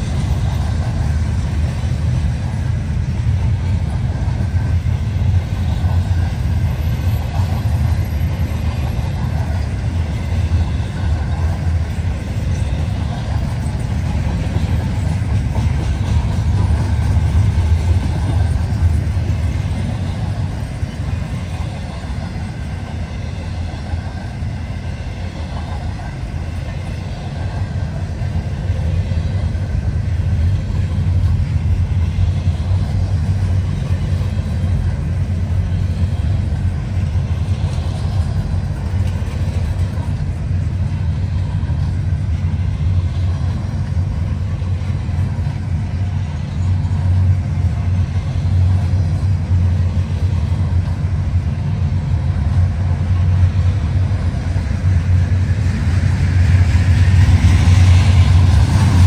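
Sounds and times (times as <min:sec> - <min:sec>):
freight train rumbling by: 0:00.0 - 0:59.0.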